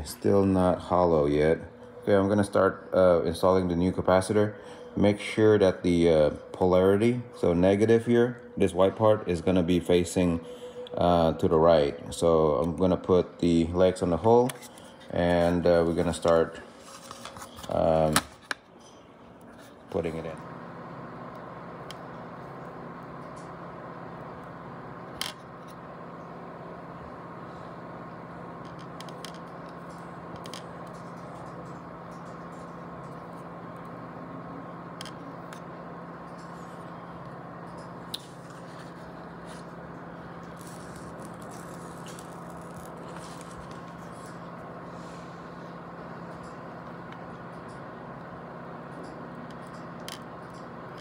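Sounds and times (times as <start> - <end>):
constant low hum: 0.0 - 51.0
faint higher tone: 0.4 - 12.6.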